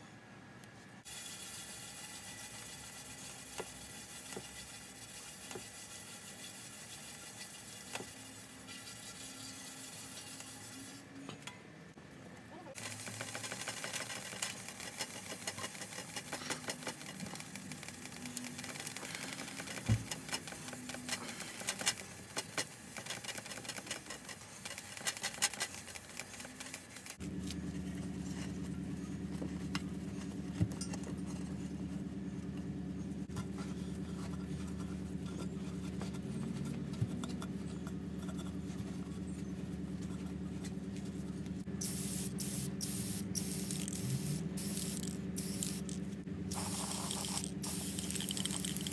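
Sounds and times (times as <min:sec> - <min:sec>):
steady low hum: 0:11.0 - 0:48.9.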